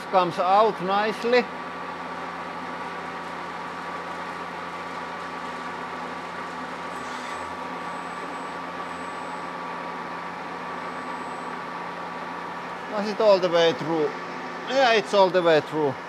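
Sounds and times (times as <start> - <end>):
machine tool humming: 1.5 - 14.7
drill bit scraping: 6.8 - 8.2.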